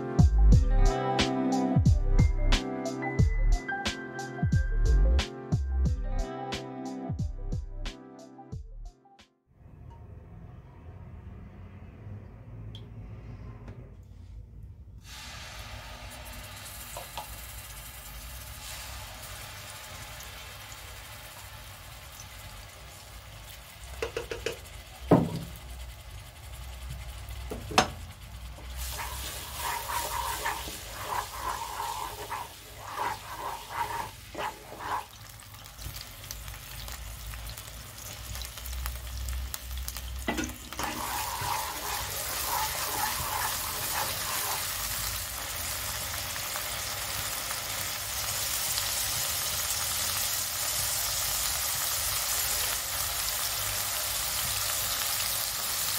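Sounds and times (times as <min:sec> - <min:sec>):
oil sizzling in a wok: 0:15.0 - 0:55.9
metal spoon stirring: 0:28.6 - 0:35.3, 0:40.3 - 0:45.1.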